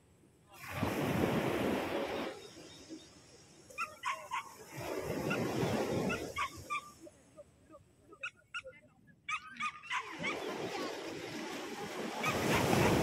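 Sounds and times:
dog yipping: 0:06.1 - 0:06.9, 0:09.3 - 0:10.5.

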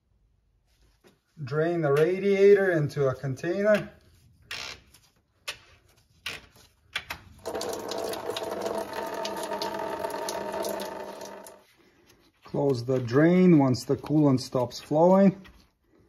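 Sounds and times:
drain cock clicks and knocks: 0:07.0 - 0:11.6
coolant pouring into drain pan: 0:07.4 - 0:11.6.

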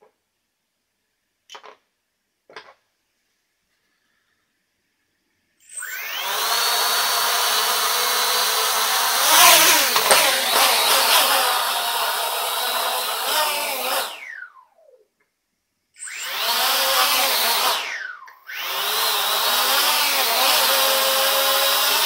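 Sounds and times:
quadcopter motors whining: 0:05.6 - 0:14.5, 0:16.0 - 0:22.0.

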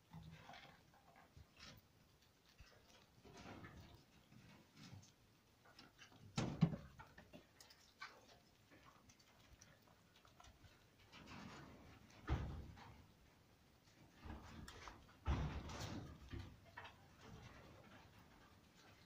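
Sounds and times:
squirrel gnawing a nut: 0:07.0 - 0:12.0.

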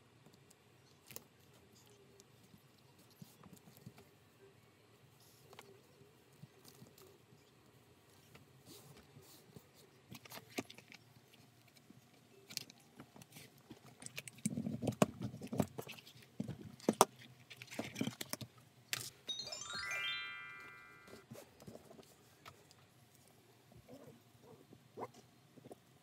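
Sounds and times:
rising chime-like notes: 0:19.3 - 0:21.2.

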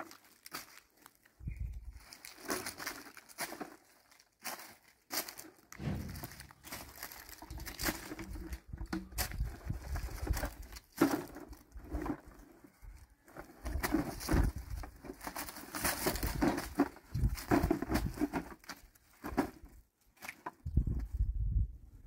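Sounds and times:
leaves crunching underfoot: 0:00.0 - 0:11.2
plastic sack and bottles crinkling: 0:00.0 - 0:20.6.

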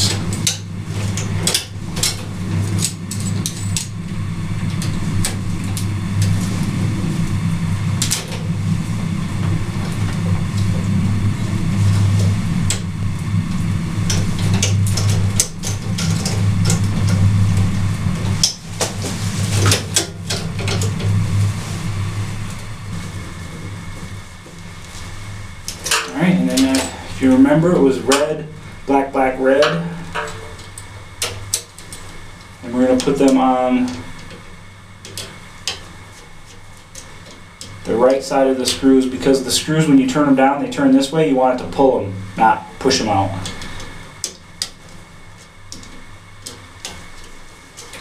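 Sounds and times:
low mechanical hum: 0:00.0 - 0:48.0
wires clicking and scraping: 0:00.0 - 0:48.0
metal conduit fitting handled: 0:29.6 - 0:32.1.

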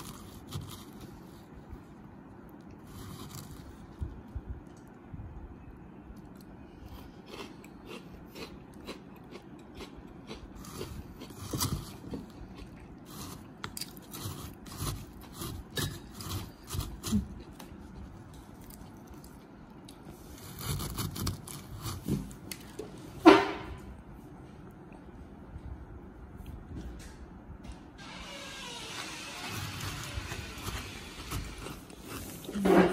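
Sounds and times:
spoon scraping crunchy sweets: 0:00.0 - 0:01.6, 0:02.5 - 0:04.0, 0:06.2 - 0:22.7, 0:29.5 - 0:32.9.

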